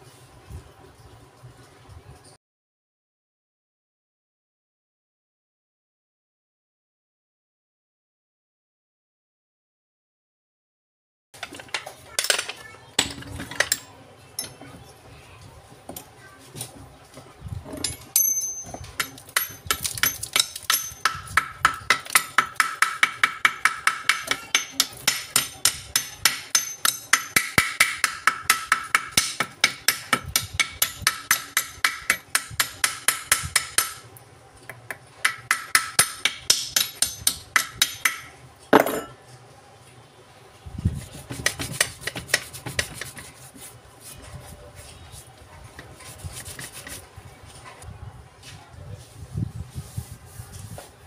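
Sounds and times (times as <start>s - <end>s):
metal tool tapping on metal: 17.8s - 34.0s, 34.7s - 39.2s.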